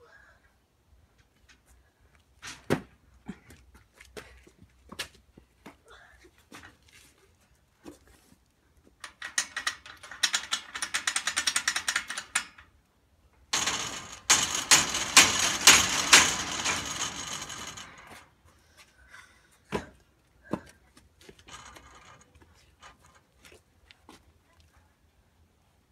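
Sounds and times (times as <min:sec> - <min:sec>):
iron bars rattling: 0:09.0 - 0:12.7, 0:13.6 - 0:18.3, 0:21.4 - 0:23.1
knocks on metal bars: 0:13.6 - 0:18.2.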